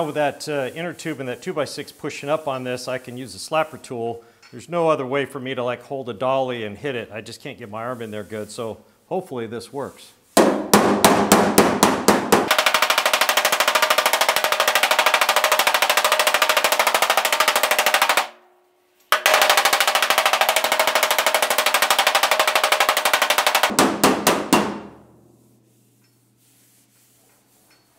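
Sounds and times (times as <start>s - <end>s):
slapper tool slapping sheet metal: 10.4s - 18.4s, 19.1s - 25.1s.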